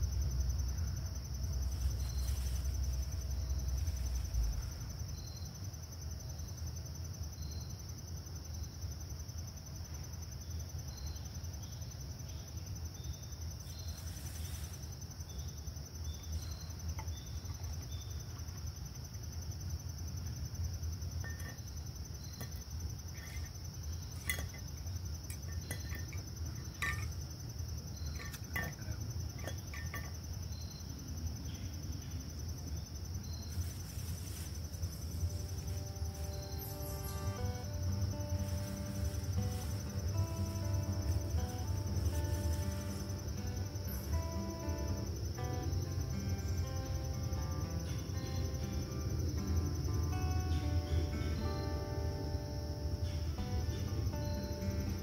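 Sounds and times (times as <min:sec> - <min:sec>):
insects trilling: 0:00.0 - 0:55.0.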